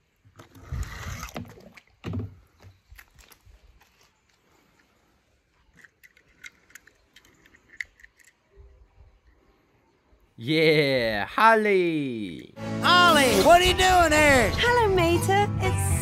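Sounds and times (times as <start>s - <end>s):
metallic clicks of toy cars: 5.7s - 8.5s.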